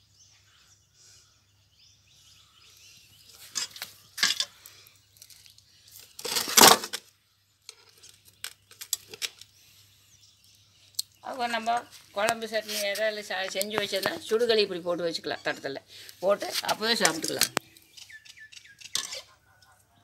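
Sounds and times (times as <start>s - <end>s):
metal pots and utensils clinking: 18.9s - 19.3s.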